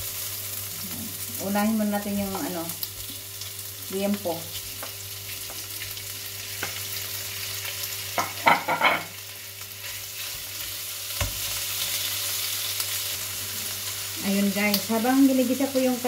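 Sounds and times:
meat sizzling in hot oil: 0.0s - 16.0s.

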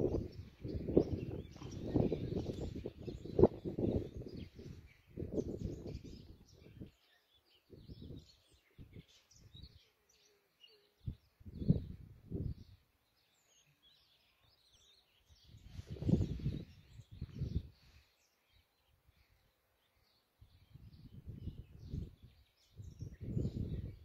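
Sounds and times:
wind buffeting microphone: 0.0s - 7.0s, 7.7s - 9.8s, 11.0s - 12.8s, 15.3s - 18.0s, 20.4s - 24.0s
small birds chirping: 0.0s - 24.0s.

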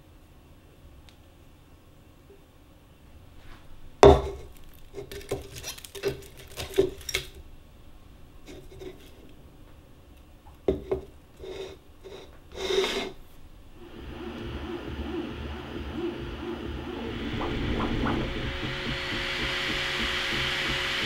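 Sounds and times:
rustle or scrape: 3.3s - 7.2s.

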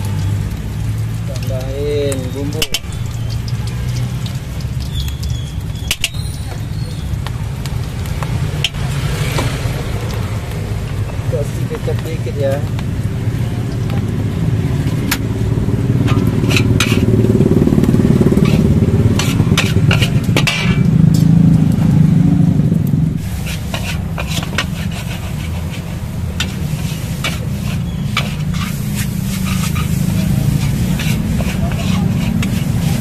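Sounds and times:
food sizzling: 0.0s - 33.0s
gas burner rumble: 0.0s - 33.0s
metal spatula scraping wok: 2.3s - 3.4s, 5.8s - 6.8s, 16.0s - 20.9s, 23.2s - 33.0s.

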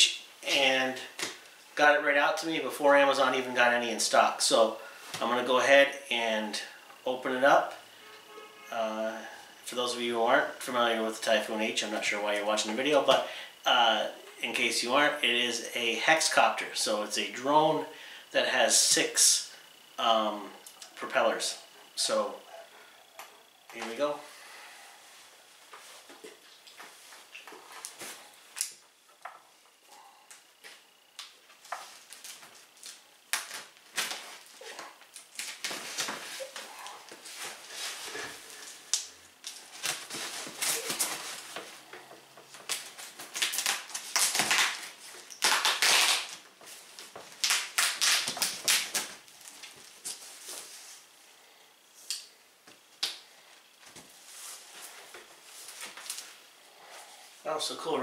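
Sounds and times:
packing material crinkling: 31.6s - 41.9s, 42.6s - 51.0s.

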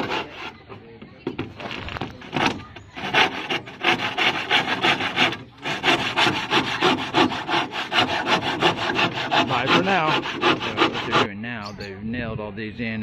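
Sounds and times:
hand saw cutting wood: 0.0s - 0.6s, 2.0s - 11.3s.

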